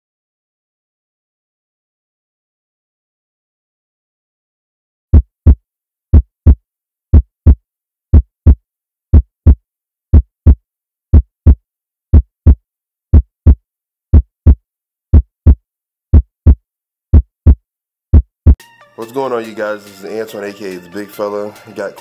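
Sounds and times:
heartbeat thumps: 5.1s - 8.6s, 9.2s - 9.6s, 10.2s - 10.6s, 12.2s - 18.6s.

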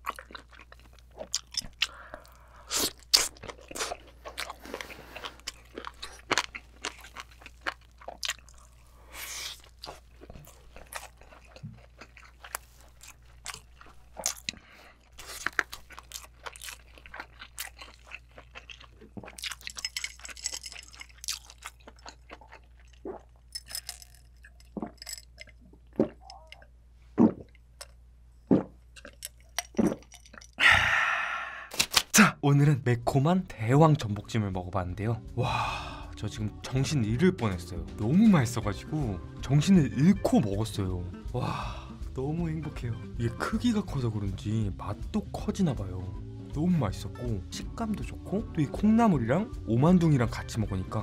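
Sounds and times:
wet chewing: 0.0s - 30.6s
person gulping drink: 18.7s - 31.8s.

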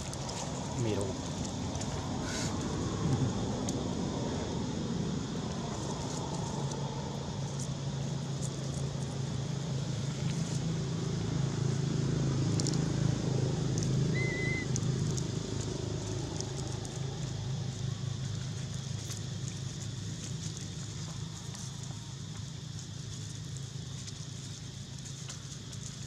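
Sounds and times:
low motor hum: 0.0s - 26.0s
high chirp: 14.1s - 14.7s.

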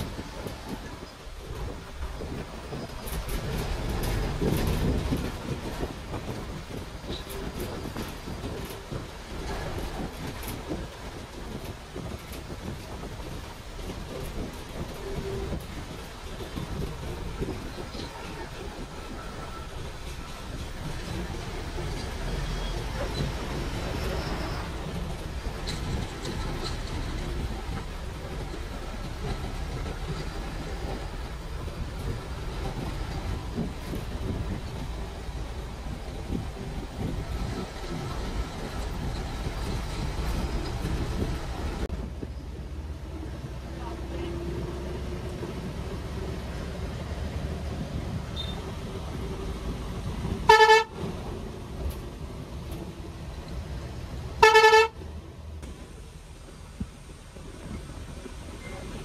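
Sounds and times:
light rattles and clicks: 0.0s - 42.7s
coach road and engine rumble: 0.0s - 59.0s.

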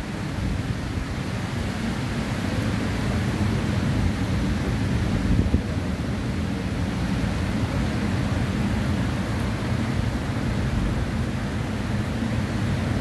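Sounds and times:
wind on microphone: 4.1s - 6.2s.

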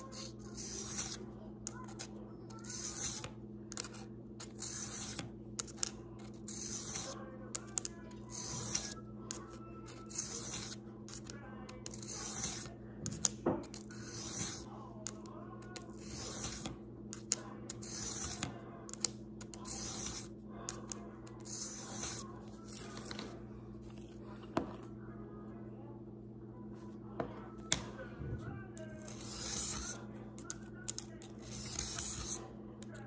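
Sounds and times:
steady low hum: 0.0s - 33.0s
blade scraping on whetstone: 13.7s - 14.7s.

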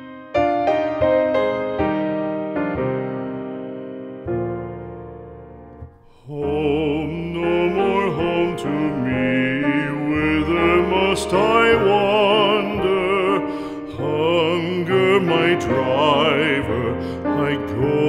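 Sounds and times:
piano accompaniment: 0.0s - 18.0s
piano chord: 0.0s - 18.0s
person singing slow ballad: 6.1s - 18.0s.

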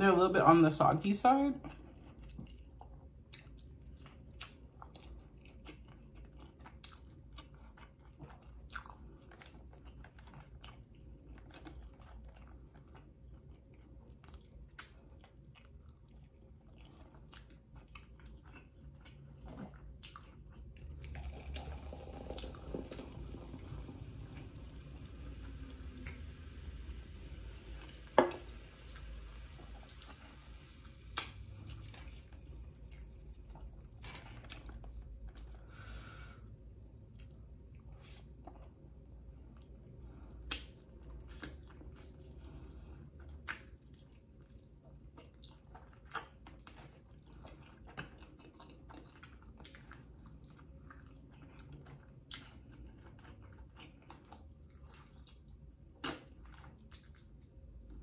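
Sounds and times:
chewing chicken wing: 1.6s - 21.4s, 36.5s - 57.9s
wet mouth clicks and smacks: 31.2s - 31.4s, 40.3s - 42.1s.

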